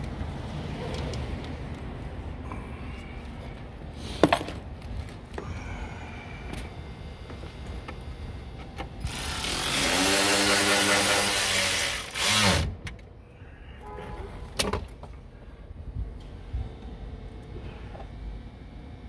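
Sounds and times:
motor-driven machine winding down: 9.0 - 12.7.

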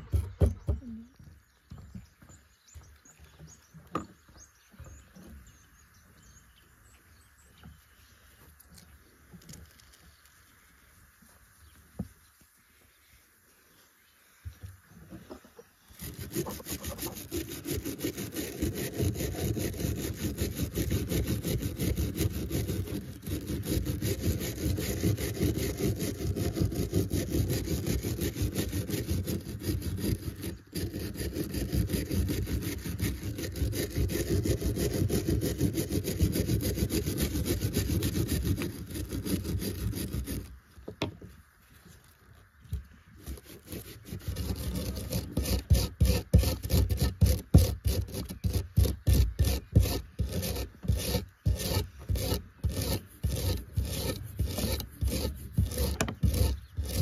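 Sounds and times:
wire brush scrubbing metal: 16.0 - 40.5, 43.2 - 57.0.

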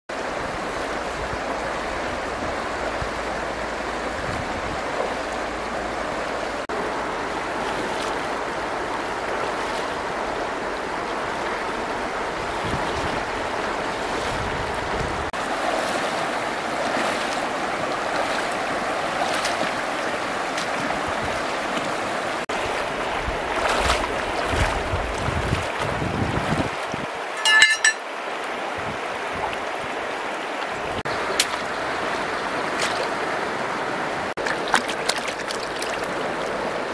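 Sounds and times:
river running over stones: 0.1 - 36.9
splashes from wading legs: 7.4 - 10.2, 15.3 - 26.0, 30.6 - 33.4, 34.3 - 36.9.

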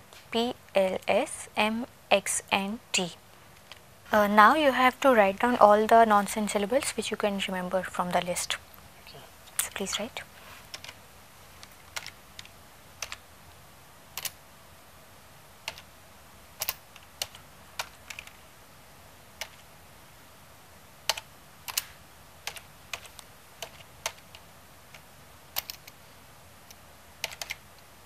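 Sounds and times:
typing on computer keyboard: 10.7 - 11.0, 11.6 - 13.2, 14.2 - 14.4, 15.6 - 15.9, 16.6 - 18.4, 19.4 - 19.7, 21.1 - 26.0, 26.7 - 27.7.

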